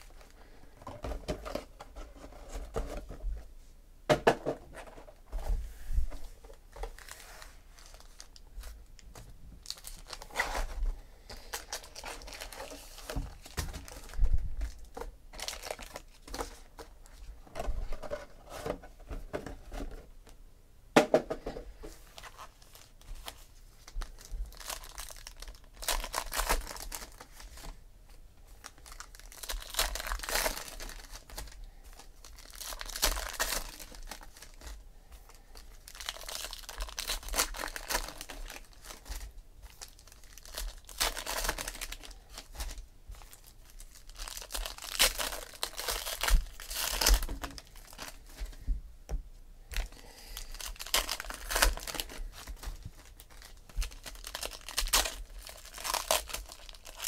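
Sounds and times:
card pack wrappers crinkling: 6.4 - 18.7, 22.0 - 27.7, 28.5 - 48.6, 49.7 - 57.0
packs torn open: 24.5 - 27.2, 28.6 - 34.7, 35.6 - 48.2, 49.7 - 57.0.

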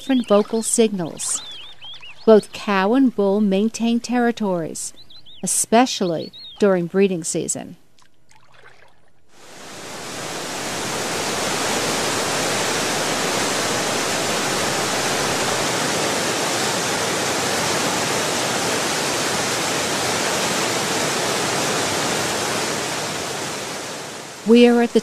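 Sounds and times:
waterfall rushing: 9.4 - 24.5.

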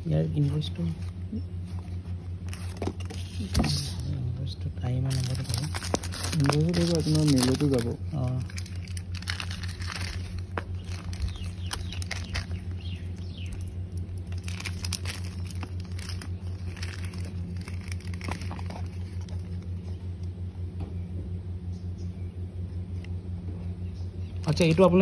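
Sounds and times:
low engine hum: 0.0 - 25.0
cardboard box rustling and clicks: 1.8 - 4.0, 5.1 - 12.8, 14.3 - 19.6.

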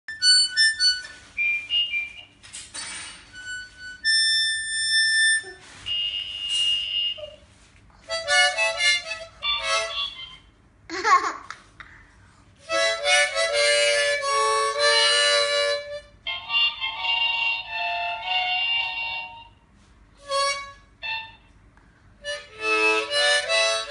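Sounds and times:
harmonica bursts: 0.1 - 7.4, 8.1 - 10.4, 12.6 - 16.2, 22.2 - 23.9.

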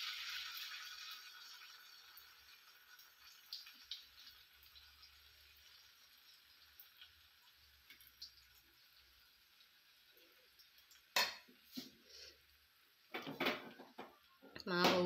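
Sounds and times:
oil sizzling in a pan: 0.0 - 15.0.

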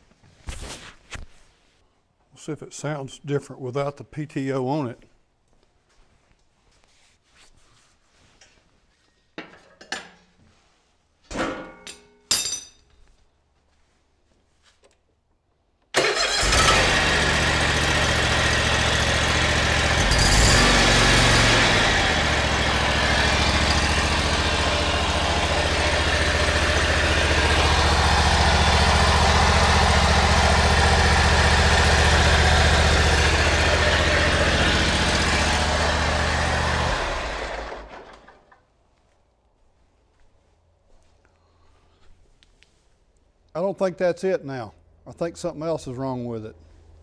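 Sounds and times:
mower engine running: 16.0 - 38.5.

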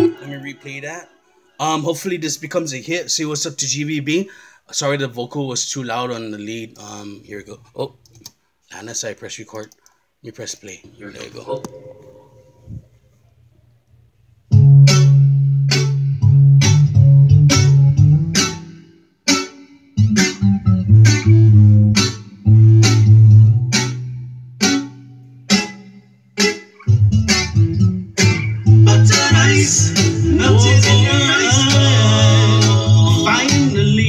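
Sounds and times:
bass and guitar over a beat: 14.5 - 34.0.

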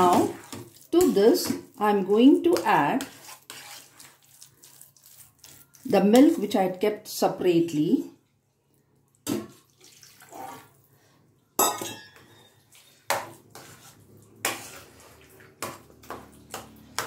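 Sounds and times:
spoon scraping steel pan: 2.4 - 4.4, 11.8 - 17.0.

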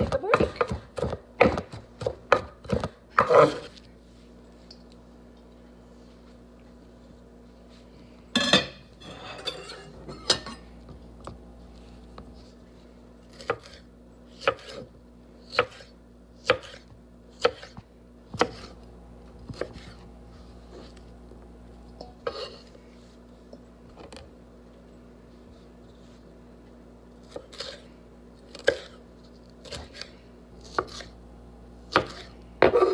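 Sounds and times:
knife chopping on wooden board: 0.0 - 3.7, 14.4 - 14.9, 15.5 - 18.7, 19.4 - 20.0, 31.9 - 32.9.

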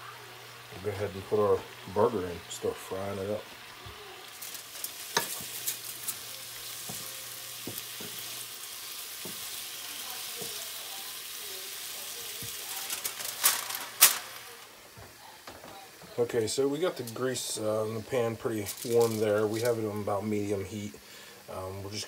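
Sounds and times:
vegetables sizzling in oil: 0.0 - 22.0
spatula stirring in pan: 3.2 - 13.4
aluminium foil crinkling: 3.7 - 17.4, 18.1 - 20.2
spatula tapping pan: 5.1 - 8.4, 9.2 - 9.6.

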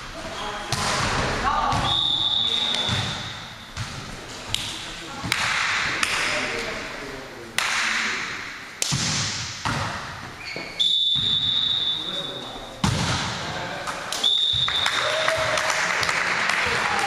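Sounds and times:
volleyball slapping gym floor: 0.7 - 6.4, 8.8 - 10.2, 12.8 - 16.9.

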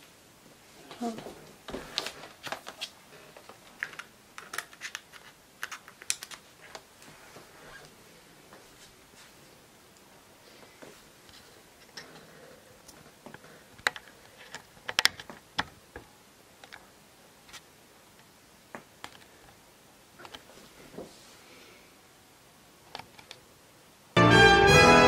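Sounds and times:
drawing materials clicking: 3.7 - 6.9.

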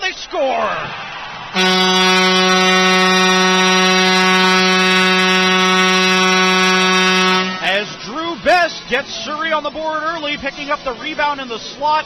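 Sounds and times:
goal horn blast: 1.6 - 7.9.

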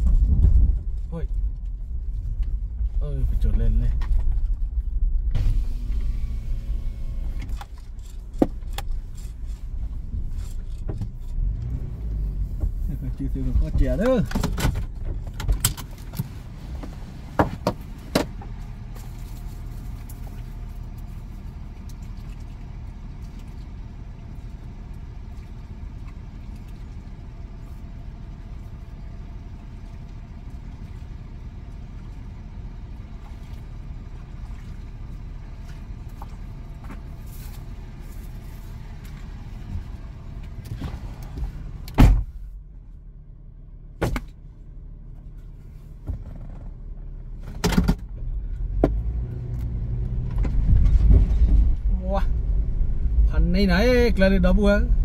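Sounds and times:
vehicle engine rumbling: 0.0 - 55.0.

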